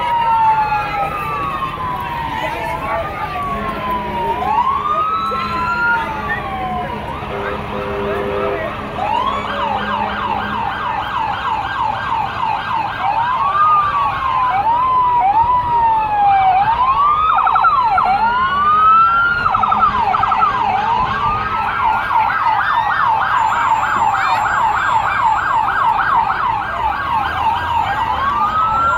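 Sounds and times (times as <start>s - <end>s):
electronic siren yelp and wail: 0.0s - 28.9s.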